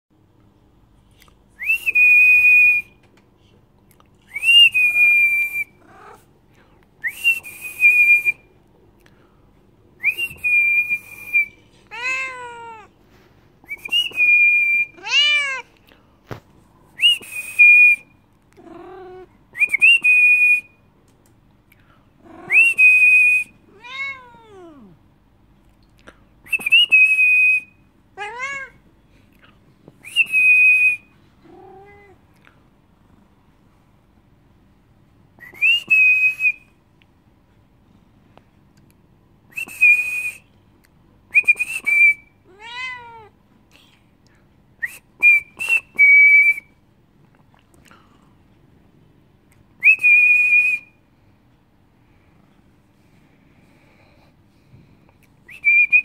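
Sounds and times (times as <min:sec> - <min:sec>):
cat meowing: 0:11.9 - 0:12.9, 0:15.0 - 0:15.7, 0:23.7 - 0:25.0, 0:28.2 - 0:28.8, 0:42.5 - 0:43.4.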